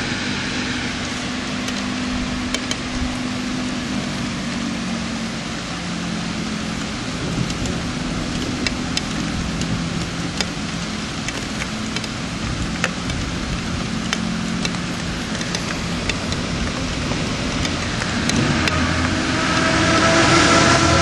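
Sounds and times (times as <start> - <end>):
heavy rain: 0.0 - 21.0
low hum: 0.0 - 21.0
drops ticking on a surface: 6.3 - 19.3.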